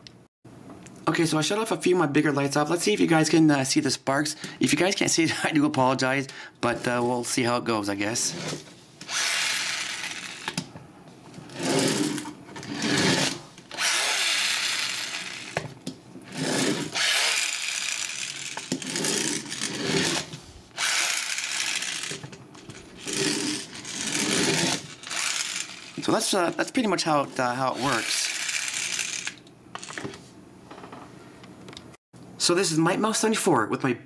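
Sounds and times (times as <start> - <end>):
toy spark mechanism grinding: 9.0 - 10.6, 11.5 - 15.6, 16.3 - 26.7, 27.4 - 30.0.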